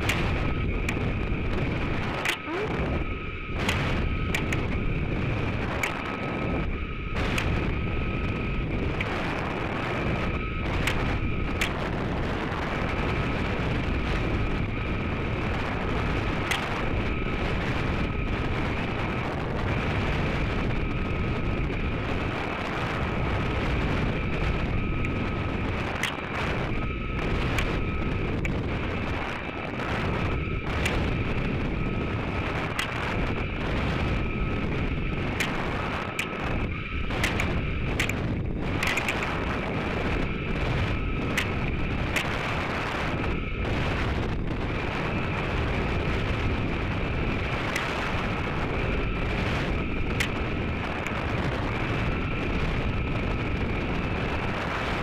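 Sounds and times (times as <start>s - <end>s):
sharp clicks: 0.0s - 1.0s, 2.1s - 2.8s, 3.6s - 4.8s, 5.7s - 6.0s, 10.8s - 11.8s, 25.9s - 26.3s, 32.7s - 33.4s, 35.3s - 38.2s, 38.8s - 39.5s, 41.3s - 42.4s, 50.1s - 50.4s.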